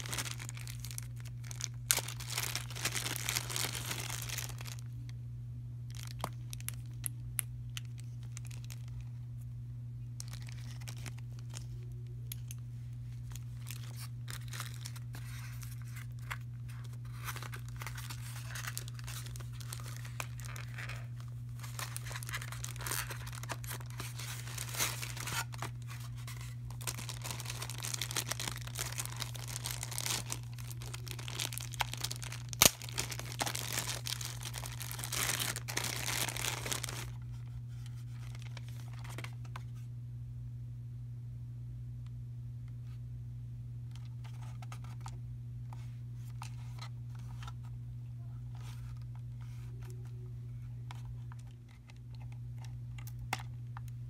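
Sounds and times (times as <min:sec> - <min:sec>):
plastic packaging crinkling: 0:00.0 - 0:05.2, 0:05.8 - 0:09.3, 0:10.2 - 0:39.6, 0:50.9 - 0:54.0
steady low hum: 0:00.0 - 0:54.0.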